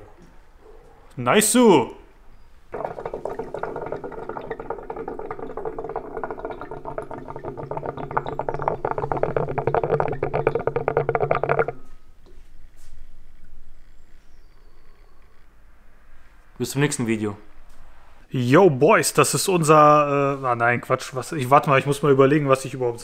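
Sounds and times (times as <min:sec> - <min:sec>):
water pipe bubbling: 0:02.7 - 0:15.3.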